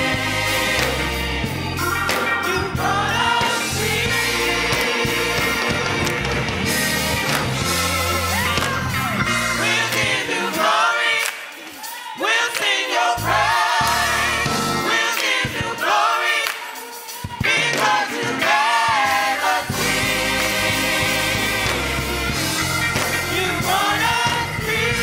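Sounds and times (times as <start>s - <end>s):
bass: 0.0s - 10.3s, 13.2s - 15.0s, 18.9s - 25.0s
gospel choir singing: 0.0s - 25.0s.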